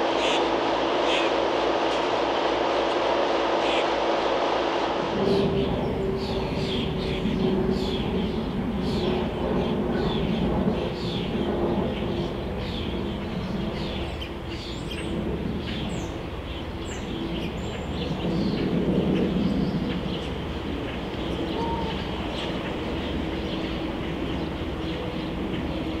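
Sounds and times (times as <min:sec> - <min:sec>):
faint hum: 0:00.0 - 0:26.0
low mechanical rumble: 0:01.6 - 0:26.0
small birds chirping: 0:05.6 - 0:26.0.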